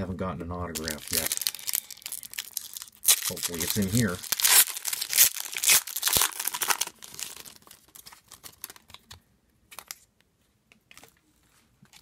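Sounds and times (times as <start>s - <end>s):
foil wrapper crinkling and tearing: 0.7s - 9.2s
cards rustling and clicking: 3.1s - 10.1s.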